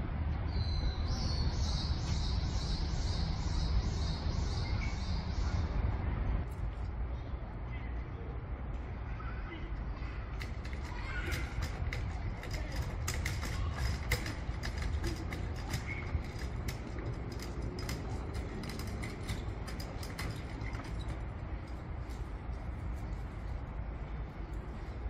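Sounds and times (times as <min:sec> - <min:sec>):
steady low rumble: 0:05.2 - 0:25.0
scattered light clicks: 0:10.1 - 0:23.6.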